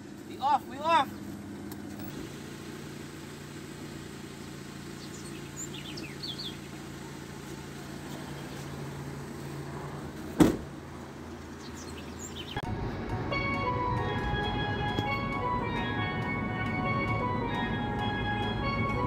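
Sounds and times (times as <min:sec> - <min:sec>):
car engine idling: 0:00.0 - 0:19.0
birds chirping: 0:00.3 - 0:02.1, 0:03.8 - 0:09.6, 0:11.1 - 0:12.7
loud thump: 0:10.4 - 0:10.8.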